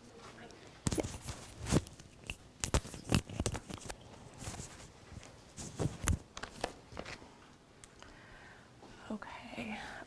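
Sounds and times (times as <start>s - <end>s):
soft thumps and rustles of handling: 0.2s - 7.3s.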